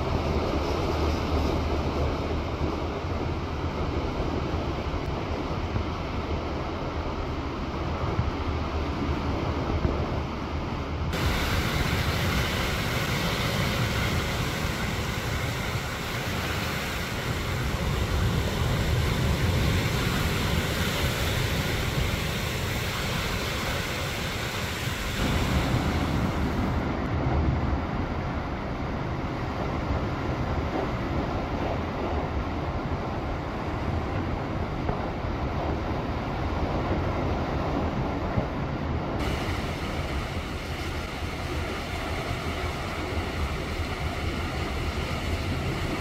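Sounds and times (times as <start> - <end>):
sea waves breaking on rocks: 11.2 - 26.9.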